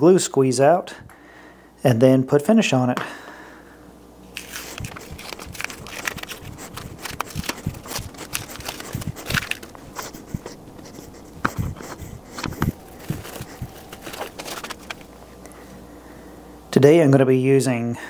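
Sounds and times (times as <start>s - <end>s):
tape peeling and crumpling: 4.3s - 15.1s.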